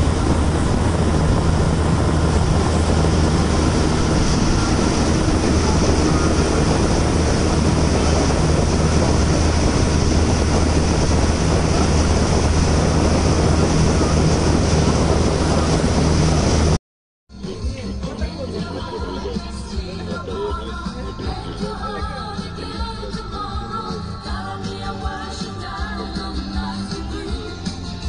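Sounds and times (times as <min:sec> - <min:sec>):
motorboat engine drone: 0:00.0 - 0:16.8
water rushing: 0:00.0 - 0:16.8
wind noise: 0:00.0 - 0:16.8.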